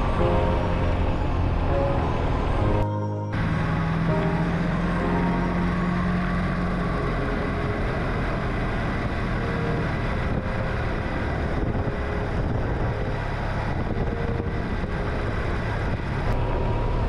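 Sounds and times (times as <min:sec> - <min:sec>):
wind and road noise: 0:00.0 - 0:17.0
motorcycle engine running: 0:03.4 - 0:17.0.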